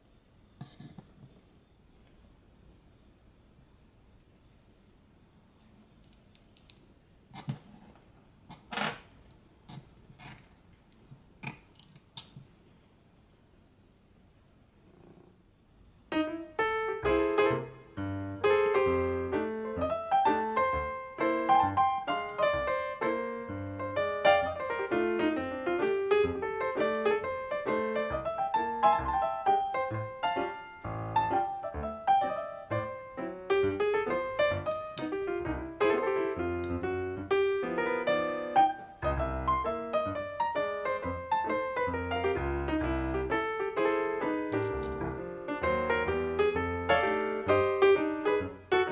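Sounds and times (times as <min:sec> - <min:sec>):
piano music: 0:16.1 - 0:48.9.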